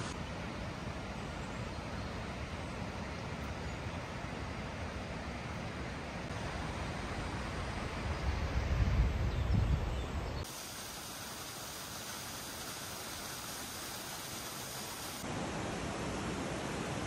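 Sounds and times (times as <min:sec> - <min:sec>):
wind rumbling on microphone: 0:07.8 - 0:10.4
waterfall rushing: 0:10.4 - 0:17.0.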